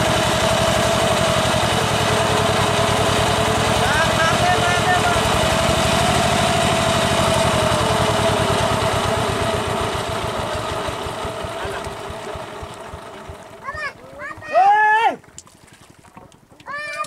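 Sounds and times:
small engine running: 0.0s - 15.0s.

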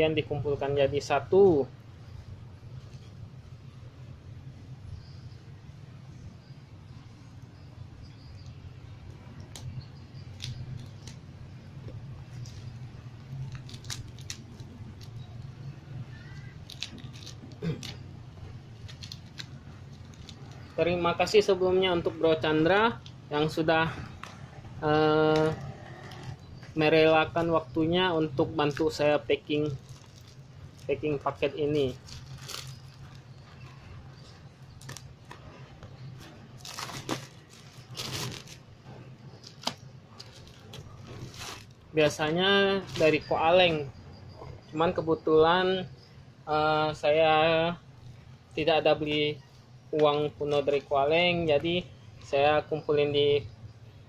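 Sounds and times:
low steady hum: 0.0s - 54.0s
plastic crinkling: 9.4s - 21.6s, 28.6s - 43.3s.

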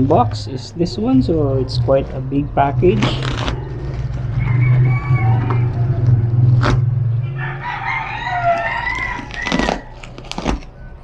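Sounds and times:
low hum: 0.0s - 9.3s
rooster crowing: 3.4s - 10.1s
knife slicing bubble wrap: 9.0s - 10.7s.

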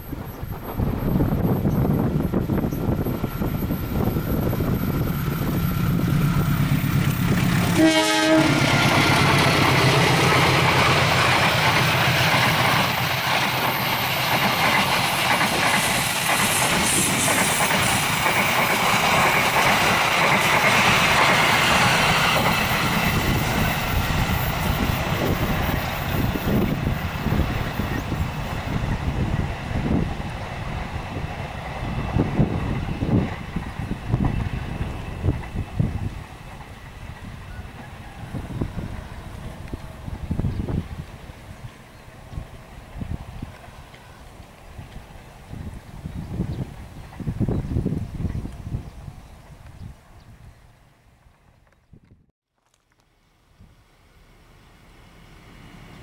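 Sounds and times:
locomotive engine: 0.1s - 42.8s
train horn blast: 7.5s - 8.8s.

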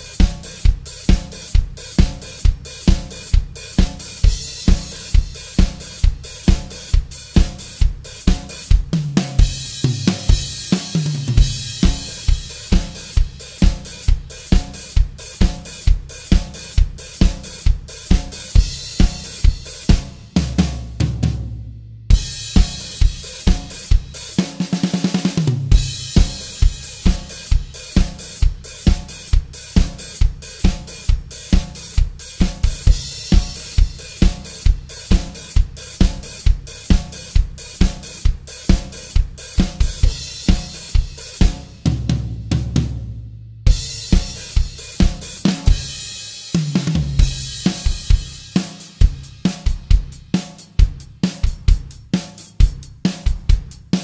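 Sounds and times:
bass drum: 0.0s - 54.0s
drum fill: 0.0s - 54.0s
snare drum: 0.0s - 54.0s
hi-hat: 47.2s - 54.0s.

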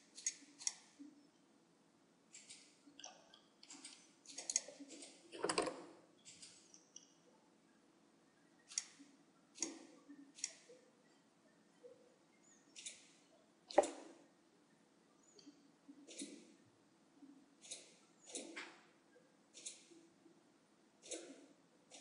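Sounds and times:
computer mouse clicking: 0.1s - 1.0s, 2.3s - 7.1s, 8.7s - 10.7s, 12.7s - 14.1s, 15.4s - 16.5s, 17.6s - 18.8s, 19.6s - 20.0s, 21.0s - 22.0s.

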